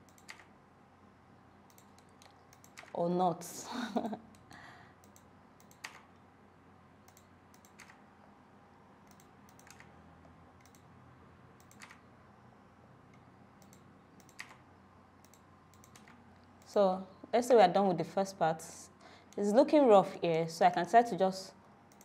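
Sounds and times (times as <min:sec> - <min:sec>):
computer mouse and keyboard clicks: 0:00.0 - 0:00.5, 0:01.7 - 0:03.0, 0:04.4 - 0:06.2, 0:07.0 - 0:08.0, 0:09.0 - 0:10.9, 0:11.6 - 0:12.1, 0:13.1 - 0:14.6, 0:15.2 - 0:16.7.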